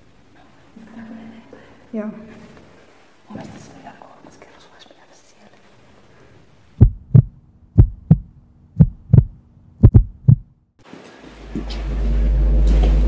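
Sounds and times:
heartbeat double thumps: 6.8s - 10.6s
low steady drone: 11.4s - 13.0s.

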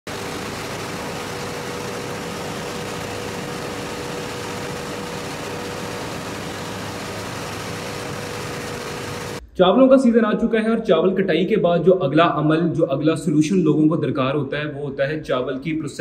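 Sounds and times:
rice mill running: 0.1s - 9.4s.

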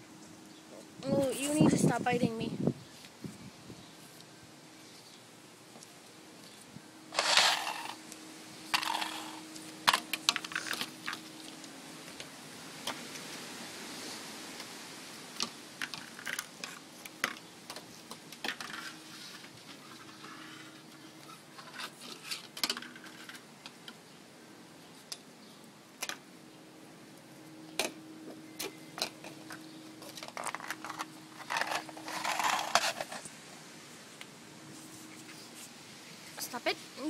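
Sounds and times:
rustling and scraping: 5.8s - 24.0s, 27.8s - 33.5s, 34.6s - 37.0s.

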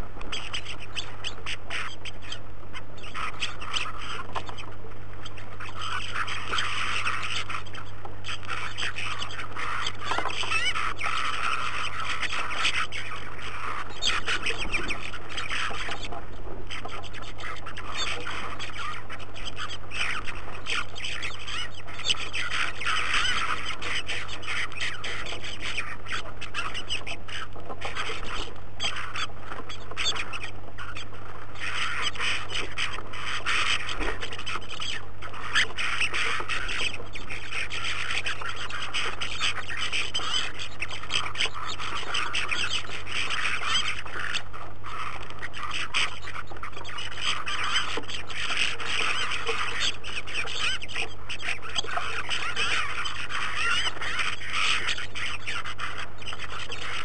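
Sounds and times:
flock of birds twittering: 0.0s - 57.0s.

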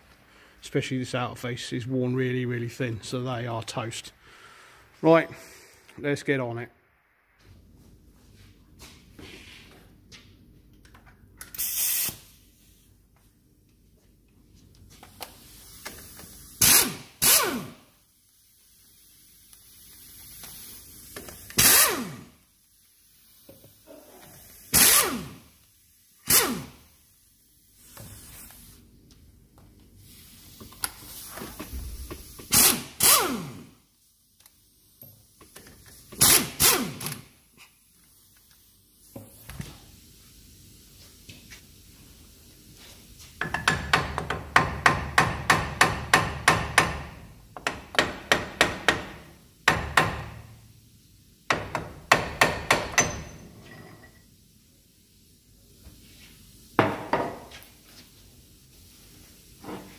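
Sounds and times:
air impact wrench bursts: 11.4s - 12.4s, 15.3s - 17.9s, 19.0s - 22.5s, 24.4s - 27.0s, 31.6s - 33.8s, 35.9s - 37.4s.

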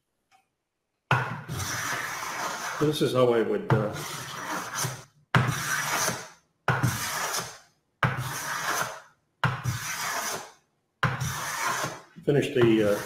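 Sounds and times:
hand plane shaving wood: 1.4s - 3.0s, 3.8s - 6.2s, 6.8s - 7.6s, 8.2s - 9.0s, 9.6s - 10.5s, 11.1s - 12.0s, 12.6s - 13.0s.

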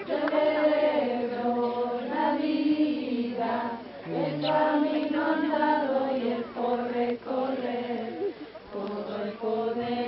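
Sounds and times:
group of voices chanting: 1.4s - 8.2s.

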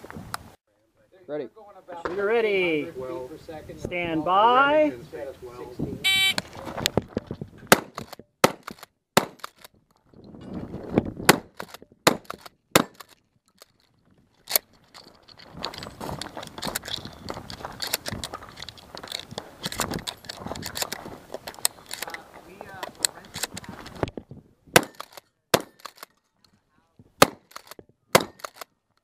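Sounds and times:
shotgun shots: 7.7s - 9.6s, 11.2s - 13.1s, 24.7s - 26.0s, 27.2s - 28.6s
shells clicking while loaded: 27.5s - 28.7s.

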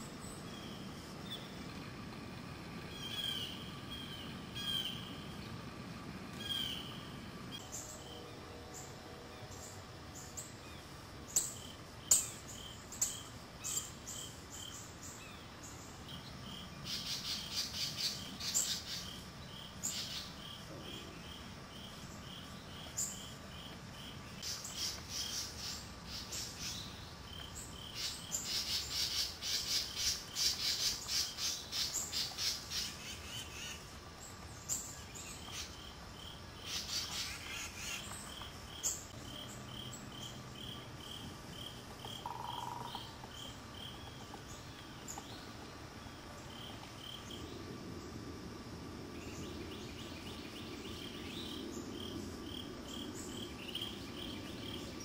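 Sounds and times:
insect chirping: 0.0s - 55.0s
woodland birds chattering: 41.7s - 45.7s.

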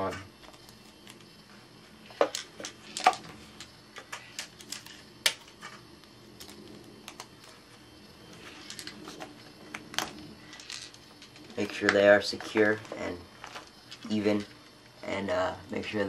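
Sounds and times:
tape clicks and paper crinkles: 2.2s - 5.7s, 6.4s - 7.6s.

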